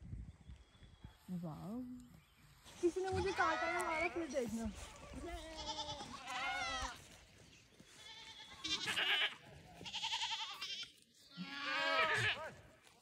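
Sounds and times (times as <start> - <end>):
sheep and goats bleating: 2.9 - 7.2, 7.8 - 13.0.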